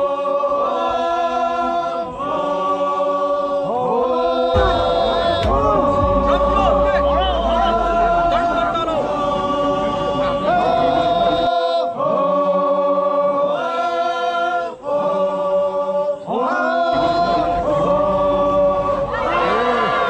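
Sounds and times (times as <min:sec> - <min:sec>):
group of voices chanting: 0:00.0 - 0:20.0.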